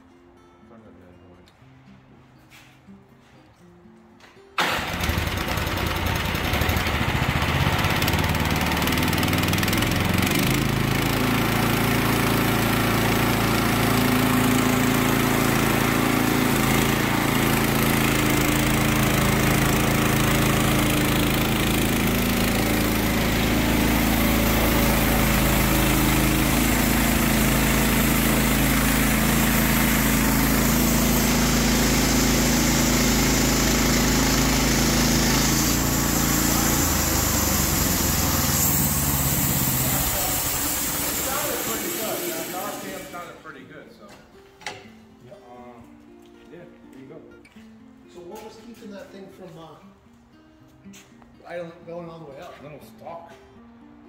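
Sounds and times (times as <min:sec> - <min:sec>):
small gasoline engine running: 0:04.6 - 0:43.4
band blade cutting log: 0:15.8 - 0:43.1.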